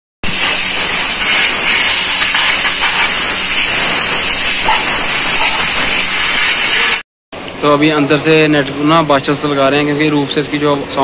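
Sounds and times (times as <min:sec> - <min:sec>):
compressed air hissing: 0:00.3 - 0:07.0.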